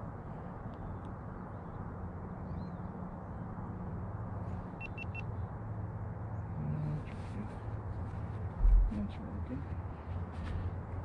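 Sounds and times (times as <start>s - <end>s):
short high beeps: 4.8s - 5.2s.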